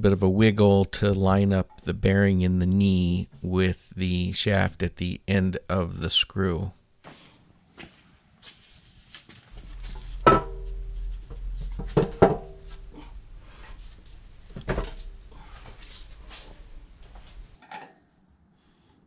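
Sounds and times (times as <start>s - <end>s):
low steady rumble: 9.5s - 17.6s
metallic knocks with ring: 10.0s - 13.0s.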